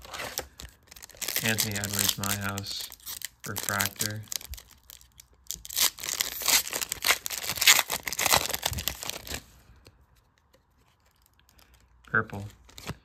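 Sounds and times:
foil wrapper tearing and crinkling: 0:00.0 - 0:09.4.

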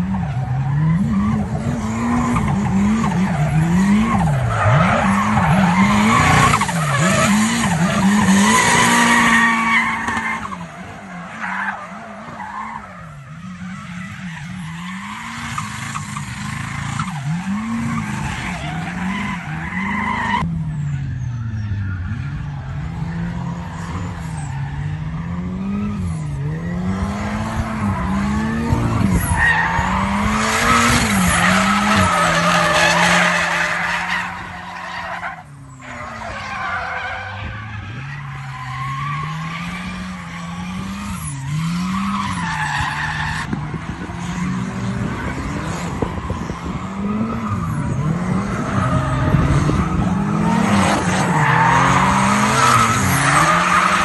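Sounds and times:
car engine revving hard: 0:00.8 - 0:10.5, 0:25.2 - 0:33.8, 0:44.0 - 0:54.0.

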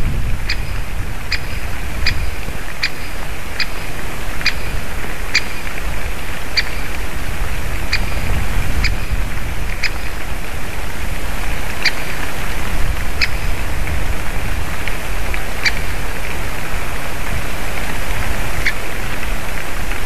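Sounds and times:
woodpecker sharp kik call: 0:00.4 - 0:05.8, 0:06.5 - 0:07.0, 0:07.9 - 0:09.2, 0:09.8 - 0:10.2.

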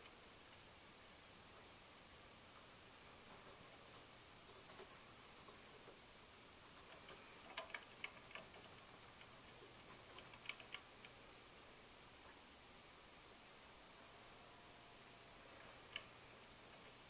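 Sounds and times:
soft clicks: 0:15.7 - 0:17.0.

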